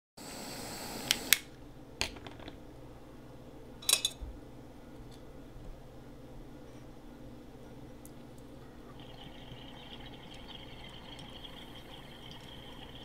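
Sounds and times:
torch flame hissing: 0.2 - 1.4.

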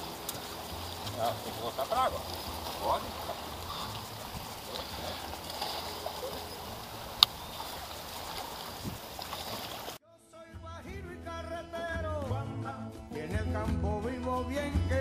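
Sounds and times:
wind and water noise: 0.0 - 10.0
music: 10.0 - 15.0.

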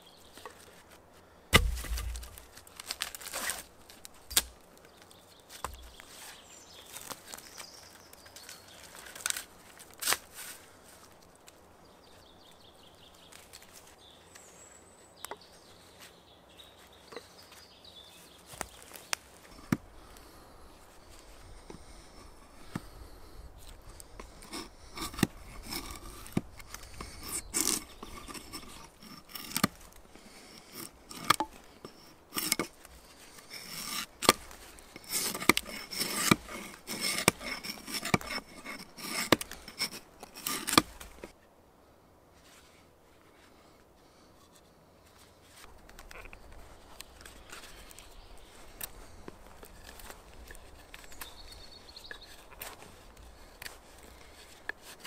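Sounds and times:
wooden pieces knocking and clicking: 1.6 - 3.4.

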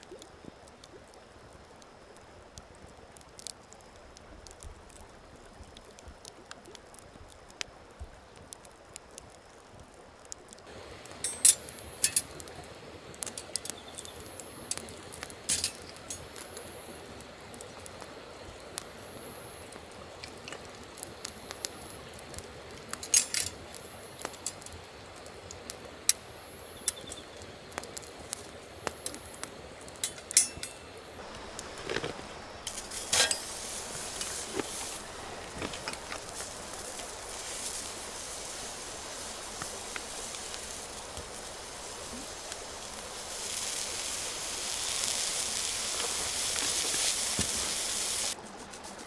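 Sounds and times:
campfire crackling and popping: 0.0 - 49.0
steady high-pitched hiss: 0.0 - 49.0
metallic clinks from grill rack: 11.2 - 12.3, 30.0 - 30.9.

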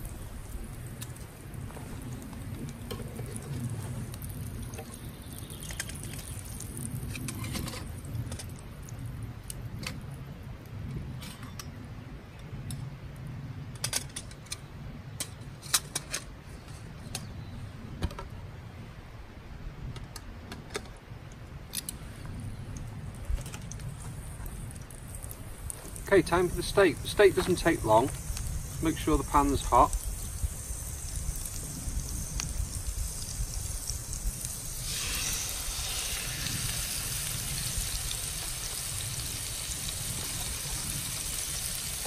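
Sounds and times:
steady low rumble: 21.4 - 42.0.

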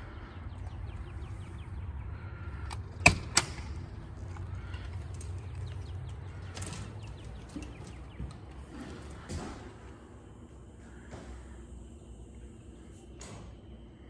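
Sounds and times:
low steady rumble: 0.0 - 14.0
door latch and handle clicks: 2.7 - 3.8.

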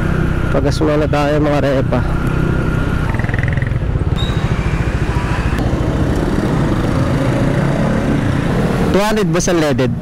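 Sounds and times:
scooter engine running: 2.2 - 7.5.

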